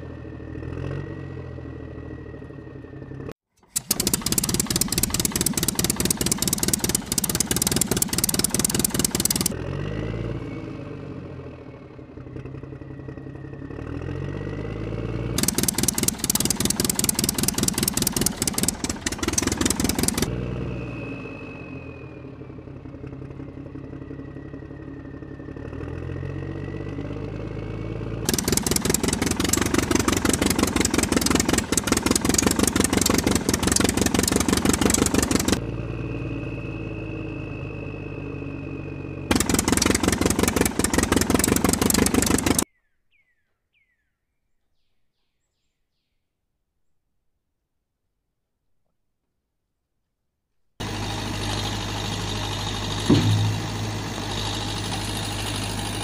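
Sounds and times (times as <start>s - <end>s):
engine revving with rapid clatter: 0.0s - 42.7s, 50.8s - 56.0s.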